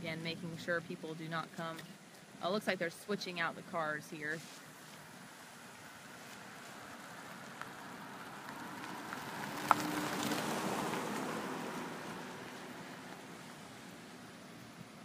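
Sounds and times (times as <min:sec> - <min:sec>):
car tyres hissing on wet road: 0:04.5 - 0:15.0.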